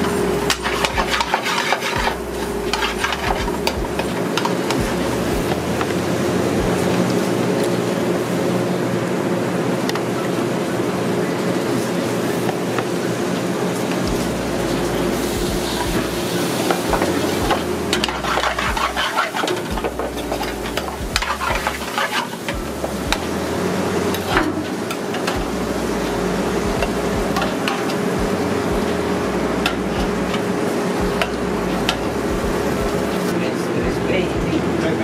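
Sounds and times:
curry sizzling in a pan: 0.0 - 33.4
metal ladle scraping a pan: 0.1 - 4.8, 15.2 - 22.6
low hum: 2.0 - 7.1, 14.0 - 21.9, 22.5 - 34.8.

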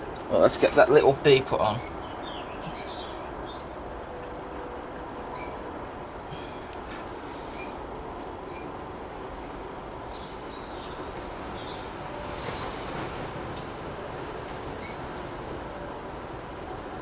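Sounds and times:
steady background hiss: 0.0 - 17.0
small birds chirping: 0.4 - 3.8, 5.3 - 5.7, 7.2 - 13.2, 14.8 - 15.2.

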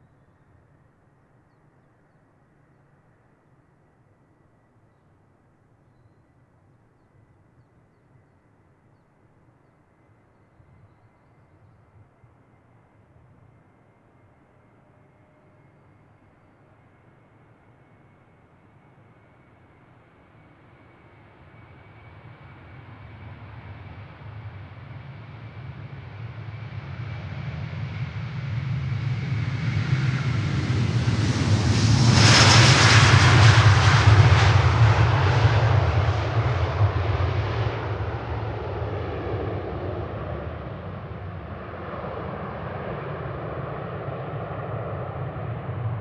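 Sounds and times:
faint high whine: 0.0 - 46.0
jet airliner engines roaring: 13.1 - 46.0.

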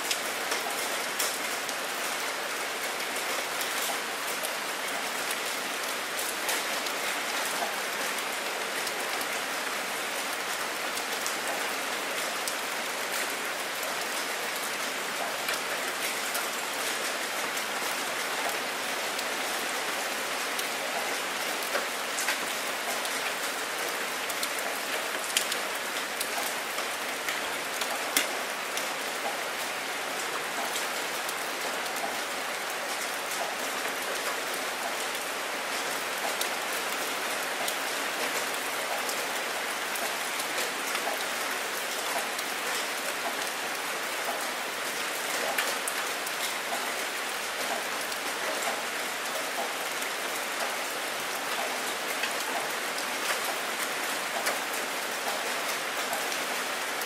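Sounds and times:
raindrop ticks: 24.3 - 25.6, 27.3 - 28.4.

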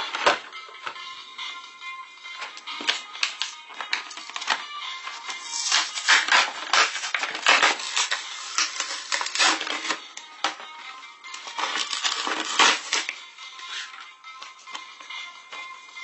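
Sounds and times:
light background music: 0.0 - 16.0
plastic packaging crinkling: 2.8 - 10.0, 11.5 - 13.1.

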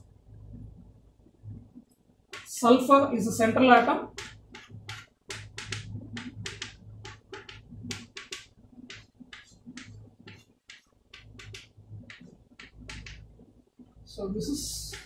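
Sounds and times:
chalk scratching on blackboard: 4.1 - 13.2.

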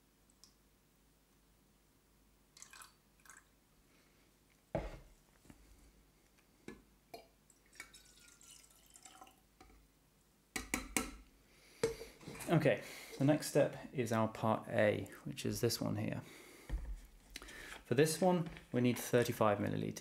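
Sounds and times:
water trickling and dripping: 2.6 - 3.5, 7.2 - 9.4.

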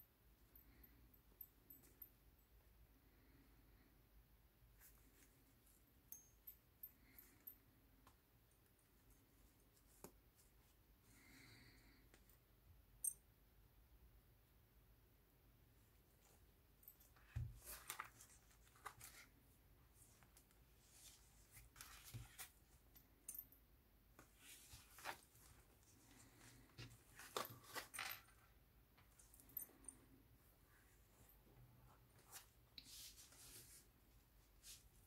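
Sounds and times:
cloth and paper rustling: 17.2 - 22.6, 24.2 - 28.4.

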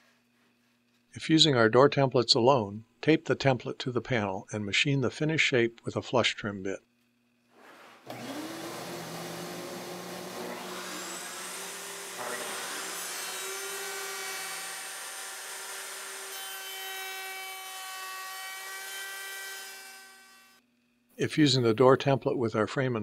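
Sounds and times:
router motor cutting wood: 8.1 - 20.6.

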